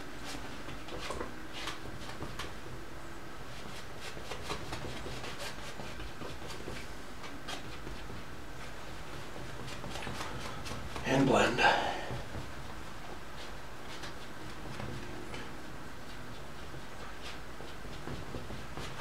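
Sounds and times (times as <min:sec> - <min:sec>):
brush scrubbing on canvas: 0:03.4 - 0:19.0
low background hiss: 0:10.2 - 0:17.5.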